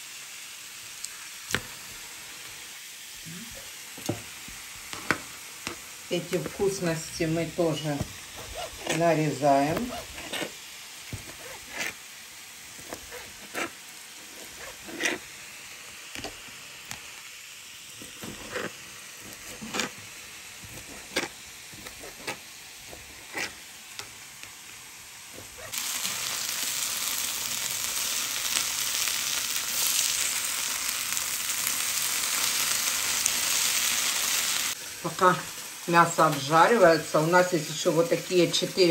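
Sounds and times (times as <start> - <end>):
meat sizzling in pan: 0.0 - 38.9
knife cutting on board: 9.7 - 12.0, 20.6 - 23.6.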